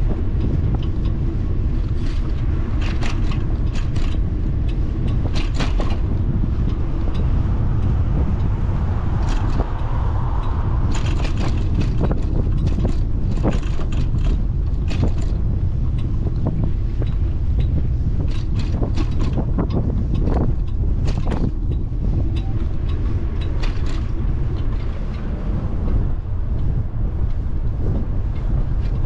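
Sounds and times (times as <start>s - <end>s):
bicycle clicks and rattles: 0.0s - 29.0s
wind buffeting microphone: 0.0s - 29.0s
broad swell of noise: 6.3s - 13.2s.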